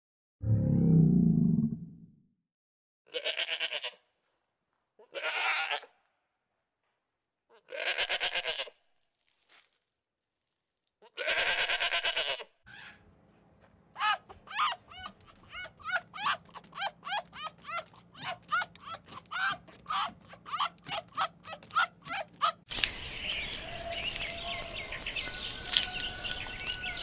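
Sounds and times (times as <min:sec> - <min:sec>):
goat bleating: 0:03.1 - 0:04.0, 0:05.0 - 0:06.0, 0:07.5 - 0:08.8, 0:11.0 - 0:12.5
foxes yelping: 0:14.0 - 0:22.7.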